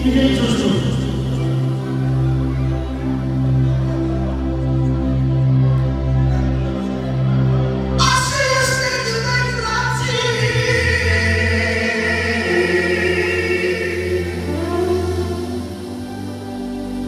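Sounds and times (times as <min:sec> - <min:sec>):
instrumental backing music: 0:00.0 - 0:17.0
man singing ornamented held notes: 0:08.0 - 0:15.7.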